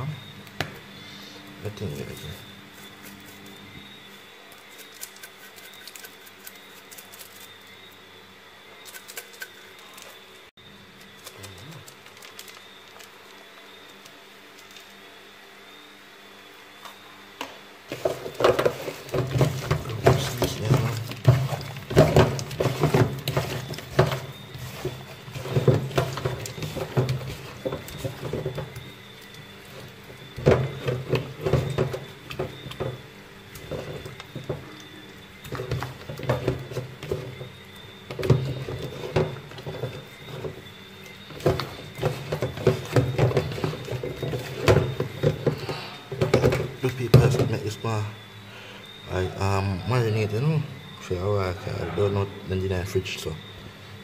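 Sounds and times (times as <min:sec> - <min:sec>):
kitchen utensils tapping and knocking: 0:17.9 - 0:28.9, 0:29.7 - 0:33.0, 0:35.4 - 0:37.5, 0:38.1 - 0:40.6, 0:41.3 - 0:47.6.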